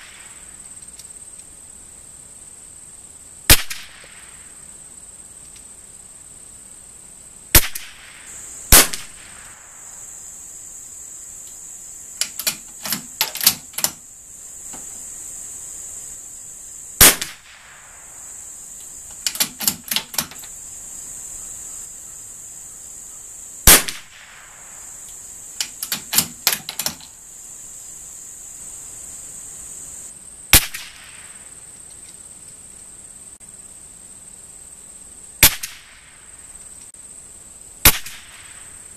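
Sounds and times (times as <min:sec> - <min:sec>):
high insect drone: 0:00.0 - 0:38.9
rifle shots cracking: 0:03.5 - 0:04.3, 0:07.5 - 0:09.9, 0:17.0 - 0:18.0, 0:23.6 - 0:24.8, 0:30.5 - 0:31.3, 0:35.4 - 0:35.9, 0:37.8 - 0:38.6
metallic rifle bolt clicks: 0:12.2 - 0:14.0, 0:19.1 - 0:20.5, 0:25.6 - 0:27.1.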